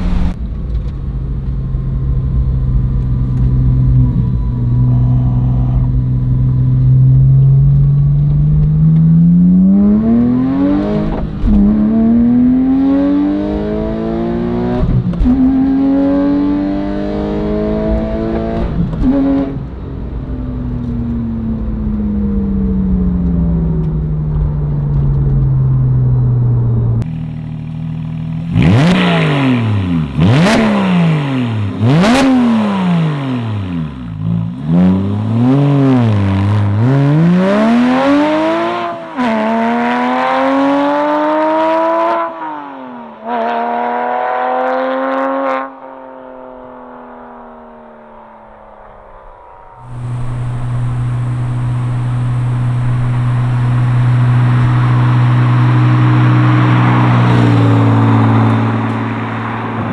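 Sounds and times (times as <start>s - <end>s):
sports car engine revving: 25.7s - 45.8s, 49.8s - 59.9s.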